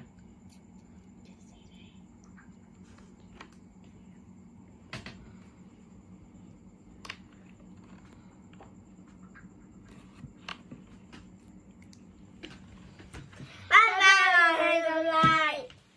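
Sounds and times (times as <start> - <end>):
low steady hum: 0.0 - 15.9.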